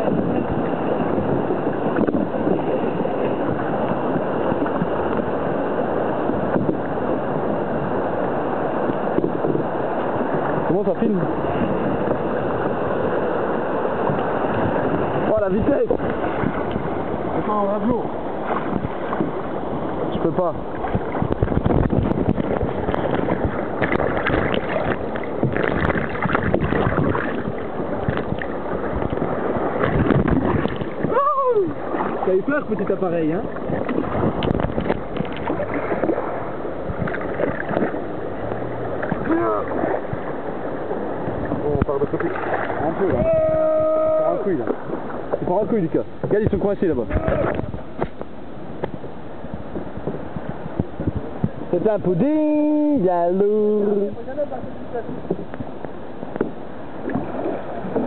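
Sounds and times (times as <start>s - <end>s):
paddle strokes in water: 0.0s - 43.5s, 44.5s - 51.8s, 54.2s - 58.0s
river water rushing over weir: 3.1s - 45.4s.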